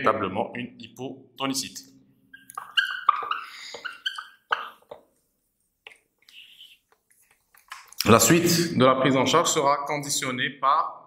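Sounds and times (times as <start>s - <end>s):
marker squeaking on whiteboard: 2.3s - 5.2s, 5.9s - 7.8s.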